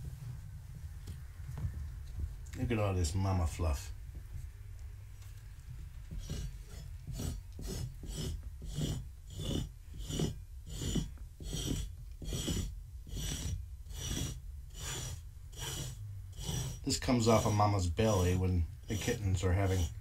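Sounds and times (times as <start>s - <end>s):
brush strokes through cat fur: 5.2s - 20.0s.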